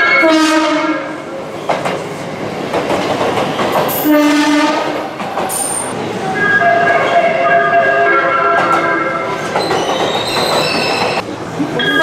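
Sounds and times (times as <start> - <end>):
train music horn melody: 0.0 - 1.2, 4.0 - 5.0, 6.4 - 9.3
train running noise: 0.0 - 12.0.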